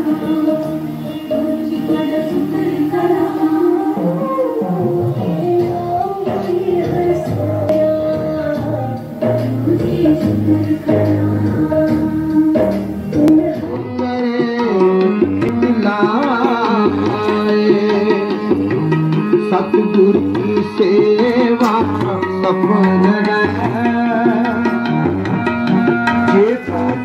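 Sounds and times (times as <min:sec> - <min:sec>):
tabla rhythm: 0:00.0 - 0:27.0.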